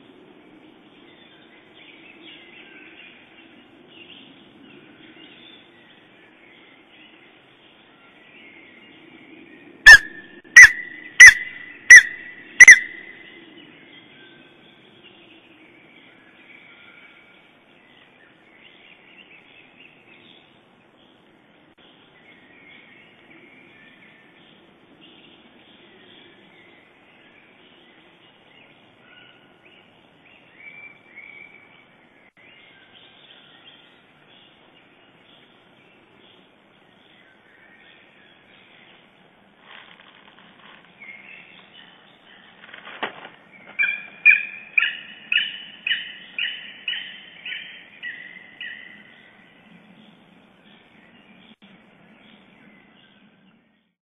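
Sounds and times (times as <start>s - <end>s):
faint songbirds singing: 0.0s - 54.0s
eagle yelping: 9.9s - 13.1s, 43.8s - 47.7s.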